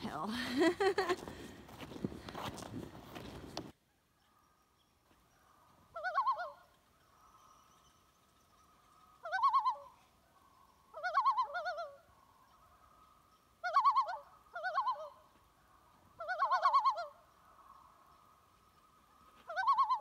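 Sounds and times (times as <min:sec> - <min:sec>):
faint steady tone: 0:03.8 - 0:16.2
warbling bird-like call: 0:05.9 - 0:07.6, 0:09.1 - 0:10.0, 0:10.9 - 0:12.7, 0:13.6 - 0:15.3, 0:16.2 - 0:17.2, 0:19.5 - 0:20.0.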